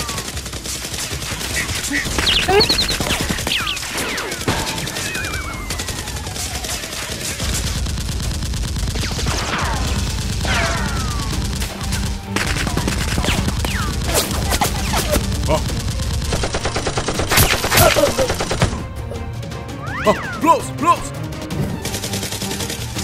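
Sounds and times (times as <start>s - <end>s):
gunfire bursts: 0.0s - 18.9s, 21.8s - 23.0s
falling whistles: 1.6s - 4.0s.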